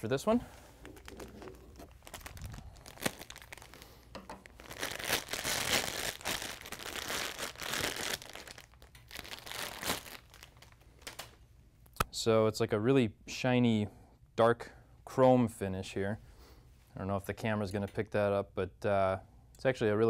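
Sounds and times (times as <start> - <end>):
plastic bag crinkling: 0.6 - 11.4.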